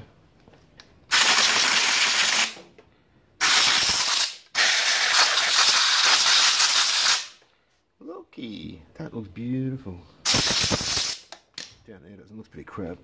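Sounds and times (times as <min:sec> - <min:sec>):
aerosol spray can hissing: 0:01.1 - 0:02.6, 0:03.4 - 0:07.4, 0:10.2 - 0:11.3.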